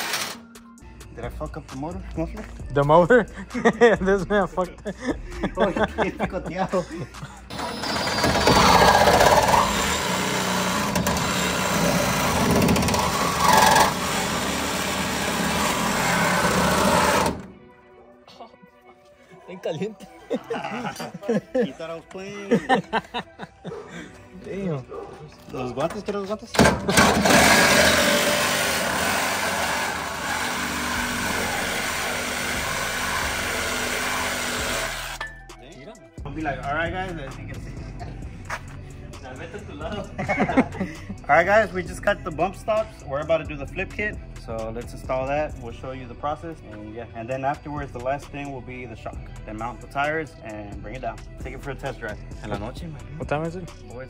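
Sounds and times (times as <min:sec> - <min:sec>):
power saw cutting: 0:00.0 - 0:00.4, 0:07.5 - 0:17.5, 0:26.5 - 0:35.2.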